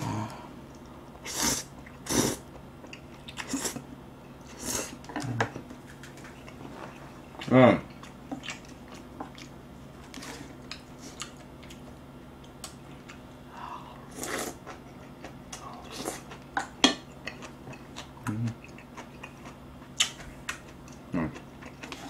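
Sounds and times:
person humming: 0.0 - 0.5, 5.2 - 5.5, 18.2 - 18.6
chewing: 5.1 - 13.3, 14.5 - 22.0.

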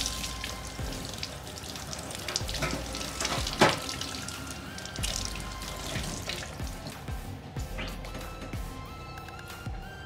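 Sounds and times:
tap water splashing into sink: 0.0 - 6.9.

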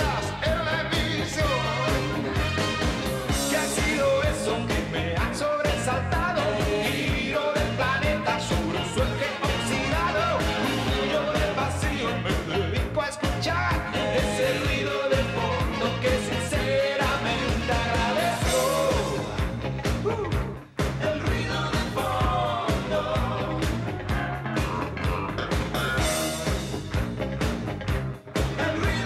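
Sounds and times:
man singing pop-rock song: 0.0 - 25.1, 28.4 - 29.0
rock band playing: 0.0 - 29.0
steady drum beat: 0.0 - 29.0.

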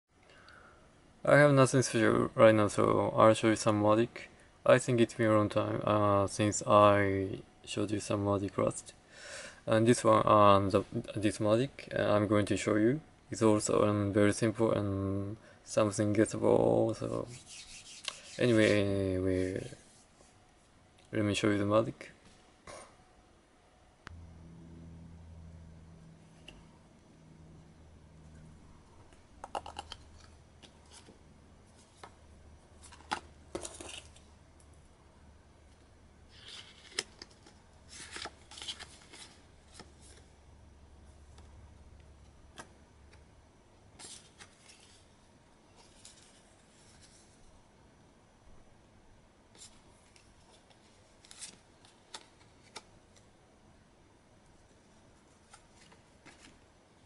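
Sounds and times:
low steady hiss: 0.1 - 57.0
faint low hum: 0.2 - 57.0
playing cards rustling and clicking: 29.4 - 31.2, 32.8 - 34.3, 36.3 - 40.2, 49.6 - 53.3, 55.4 - 56.6.

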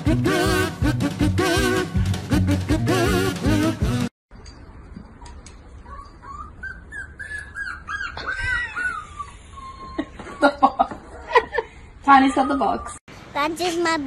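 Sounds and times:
puppy whining squeaks: 5.1 - 10.5, 12.2 - 13.0.

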